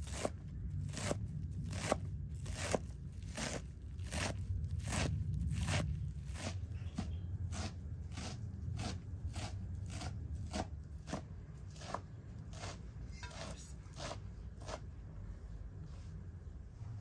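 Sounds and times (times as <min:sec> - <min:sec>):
knife chopping herbs on wood: 0:00.0 - 0:14.9
low rumble: 0:00.3 - 0:10.4, 0:15.2 - 0:17.0.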